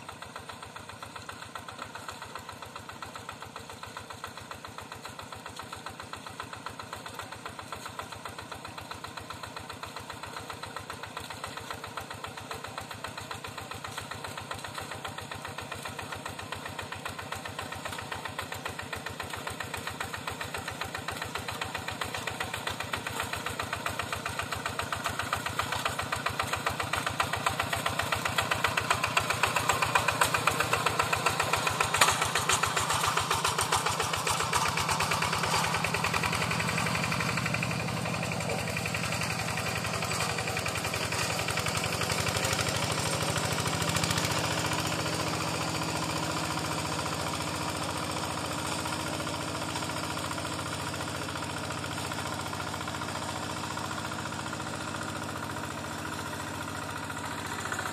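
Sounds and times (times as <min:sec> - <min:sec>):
diesel engine chugging: 0:00.0 - 0:57.9.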